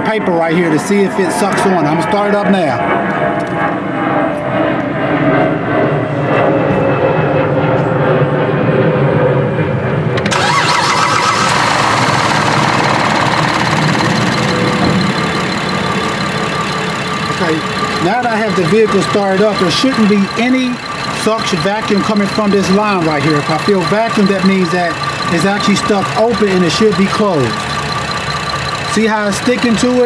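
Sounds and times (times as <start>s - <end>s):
car engine cranking and starting: 10.2s - 30.0s.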